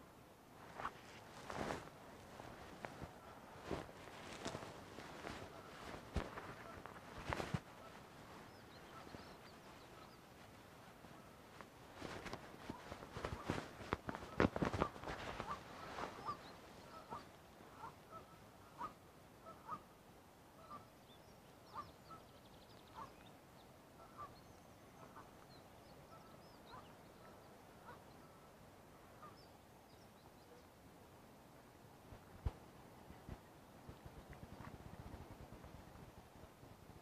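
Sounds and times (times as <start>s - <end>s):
knocks and rustles: 0.7s - 7.6s, 12.0s - 16.2s
waterfowl honking: 15.4s - 19.8s.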